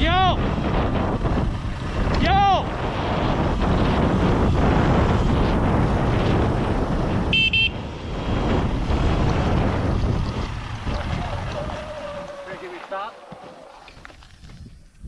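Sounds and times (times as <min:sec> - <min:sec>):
wind buffeting microphone: 0:00.0 - 0:15.0
tyres rolling over gravel: 0:09.0 - 0:14.6.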